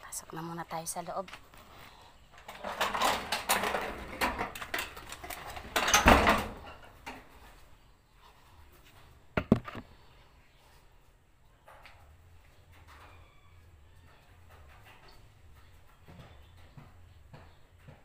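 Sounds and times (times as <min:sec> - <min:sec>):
metal sheet door scraping and rattling: 0:02.4 - 0:07.5
sharp knocks: 0:09.4 - 0:09.8.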